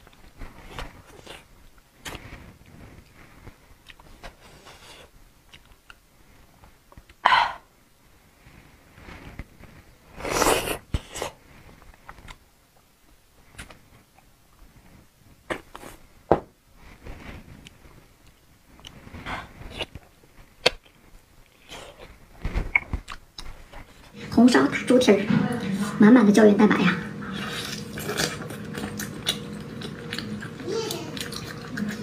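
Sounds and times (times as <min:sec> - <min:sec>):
wet chewing clicks: 0:27.5 - 0:32.0.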